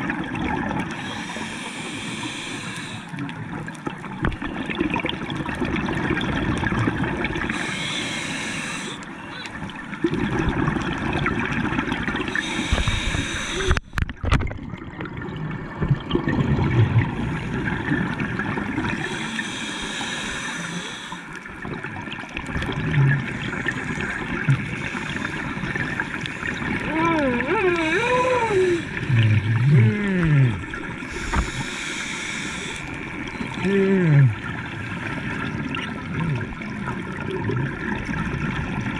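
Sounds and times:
exhaled bubbles gurgling: 0.0 - 38.9
regulator hissing inhale: 1.0 - 3.2, 7.5 - 9.1, 12.3 - 14.0, 19.0 - 21.4, 31.0 - 33.0.

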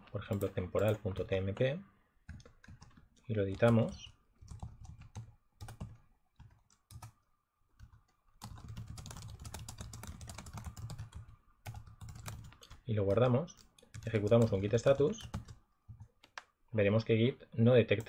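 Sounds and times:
typing on computer keyboard: 2.3 - 7.2, 7.8 - 12.8, 13.6 - 16.5.

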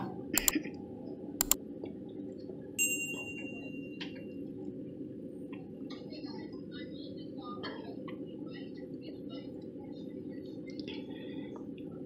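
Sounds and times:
sharp metal clicks: 0.4 - 0.6, 1.4 - 1.6
ringing metallic clink: 2.8 - 4.0.

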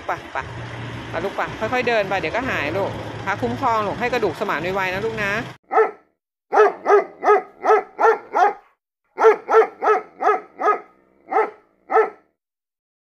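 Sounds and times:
dog barking: 5.7 - 12.3.

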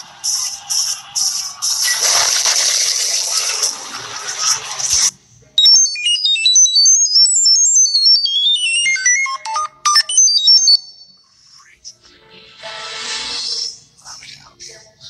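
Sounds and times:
hissing noise: 0.0 - 5.1
electronic beep melody: 5.6 - 11.2.

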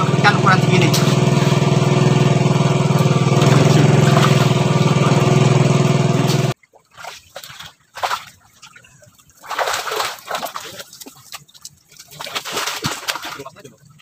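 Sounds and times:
small engine running: 0.0 - 6.6
faint water splashing: 2.7 - 5.3, 6.2 - 14.0.

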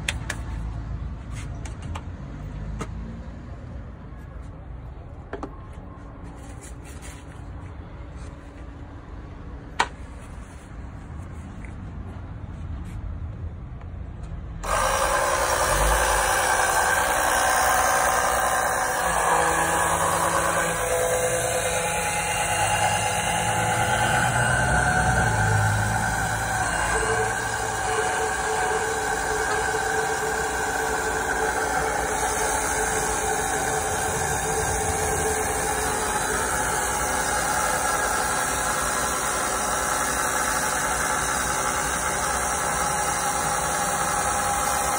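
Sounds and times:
electric pump buzzing: 14.6 - 44.9.

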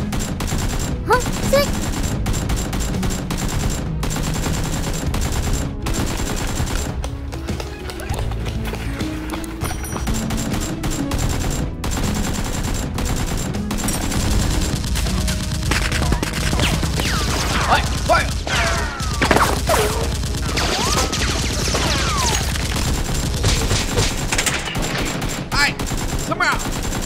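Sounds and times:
automatic gunfire: 0.0 - 7.1, 10.1 - 27.0.

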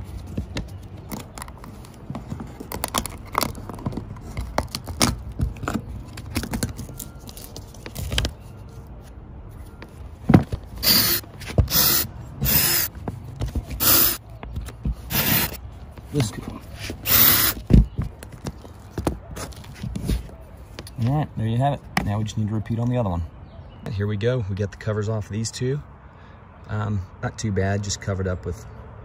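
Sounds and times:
cordless drill bursts: 10.8 - 12.9, 13.8 - 14.2, 15.1 - 15.6, 17.0 - 17.6.

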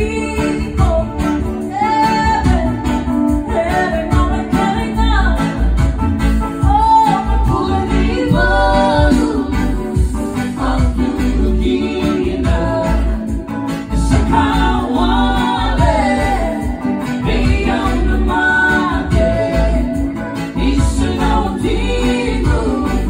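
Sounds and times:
guitar: 0.0 - 23.0
heavy pulsing bass: 0.0 - 23.0.

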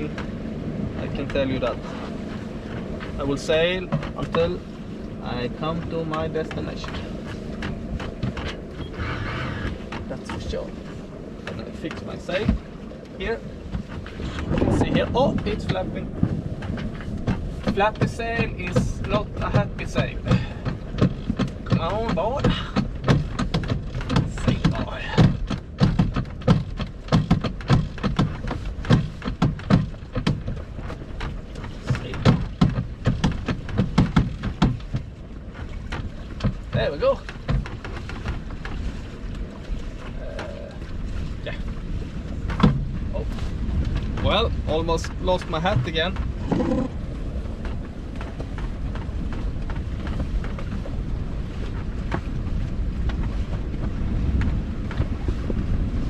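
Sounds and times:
sail flapping in the wind: 0.0 - 56.0.

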